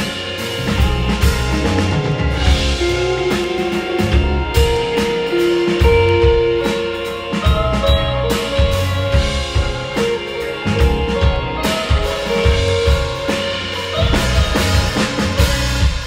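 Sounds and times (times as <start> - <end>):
drum hits: 0.0 - 6.8
bass guitar: 0.0 - 16.0
electric guitar melody: 0.0 - 16.0.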